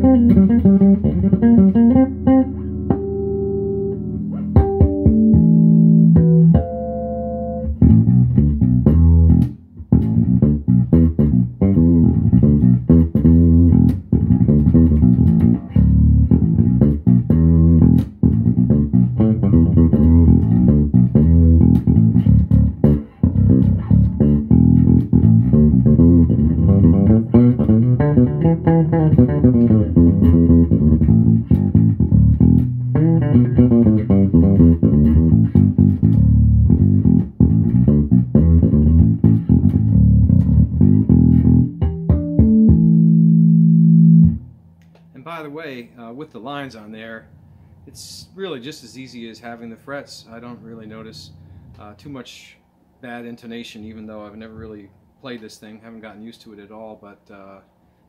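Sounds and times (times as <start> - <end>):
fretless bass plucked notes: 0.0 - 45.4.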